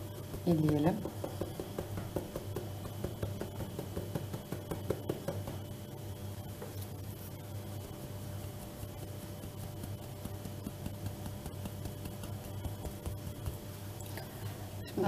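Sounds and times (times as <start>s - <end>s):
metal sieve ticking and tapping: 0.2s - 5.7s.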